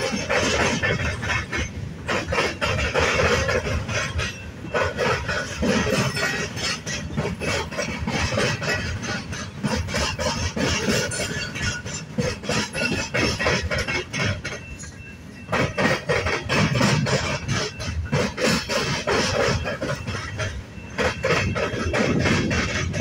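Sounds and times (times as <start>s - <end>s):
freight train rolling past: 0.0s - 23.0s
wheels knocking and clanking: 0.0s - 23.0s.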